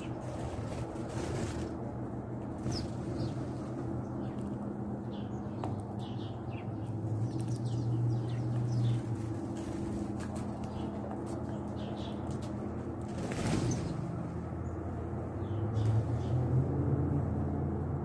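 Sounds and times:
wings fluttering: 0.0 - 4.6, 8.4 - 14.6
sparrows chirping: 0.0 - 16.6
steady low hum: 0.0 - 18.0.

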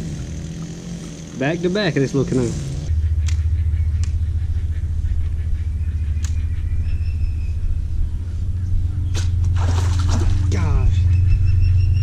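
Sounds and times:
steady low rumble: 1.4 - 12.0
sharp click: 6.2 - 6.4.

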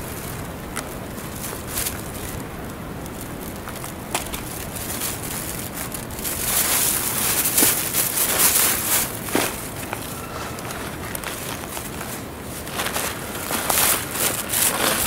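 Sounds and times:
dry leaves crunching: 0.0 - 15.0
mushrooms rustling and snapping: 0.0 - 15.0
plastic bag crinkling: 0.0 - 15.0.

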